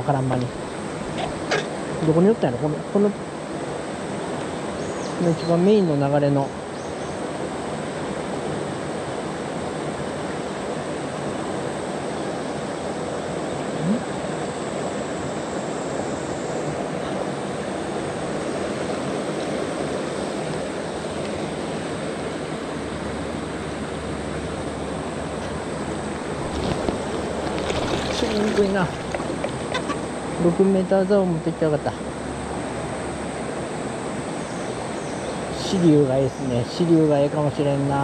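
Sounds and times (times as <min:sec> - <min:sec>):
river rushing over stones: 0:23.9 - 0:30.6.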